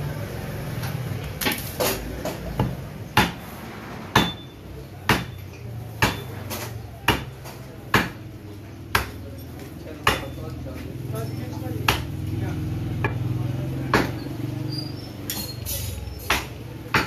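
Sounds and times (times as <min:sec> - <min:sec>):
cleaver chopping ribs on wood: 0:02.2 - 0:03.4, 0:05.1 - 0:05.4, 0:06.0 - 0:08.3, 0:08.9 - 0:09.2, 0:10.0 - 0:10.4, 0:11.8 - 0:12.2, 0:13.0 - 0:13.3, 0:13.9 - 0:14.2, 0:16.2 - 0:17.0.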